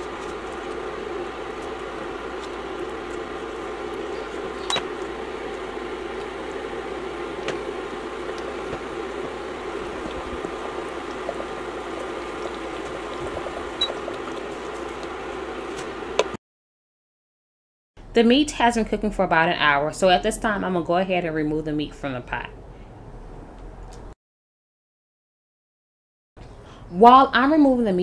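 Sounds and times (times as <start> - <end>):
broth simmering in a pot: 0.0 - 16.3.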